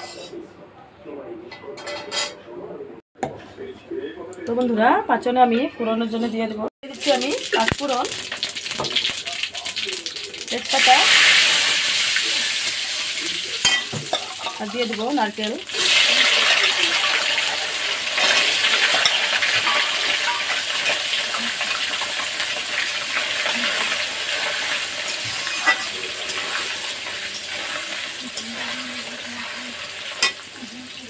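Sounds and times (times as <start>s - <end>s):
hot oil sizzling: 6.8s - 31.0s
metal spatula stirring: 18.2s - 30.4s.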